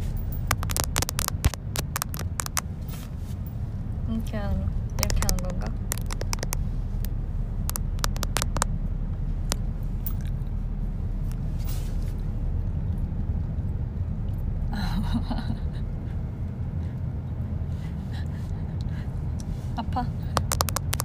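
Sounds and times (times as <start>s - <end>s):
car cabin road rumble: 0.0s - 21.0s
sharp clicks and taps on microphone: 0.3s - 3.0s, 4.9s - 8.7s, 20.4s - 21.0s.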